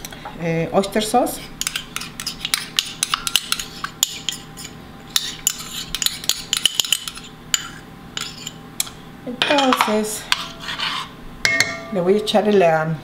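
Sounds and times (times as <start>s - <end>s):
metal spoon clinking on pot: 11.5s - 12.0s.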